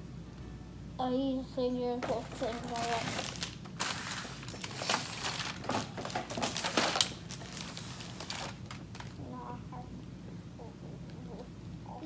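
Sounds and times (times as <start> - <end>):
plastic sleeves crinkling: 2.0 - 9.2.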